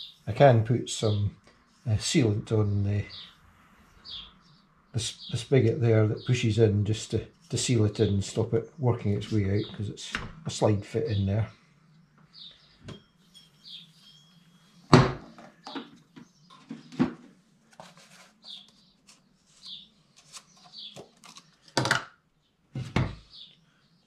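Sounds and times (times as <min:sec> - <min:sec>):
objects knocking on metal workbench: 0:22.8 - 0:23.2.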